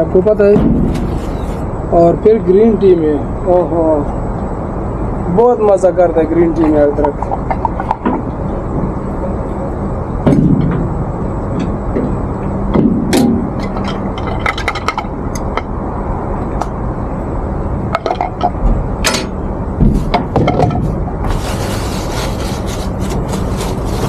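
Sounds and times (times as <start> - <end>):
low engine hum: 0.0 - 24.0.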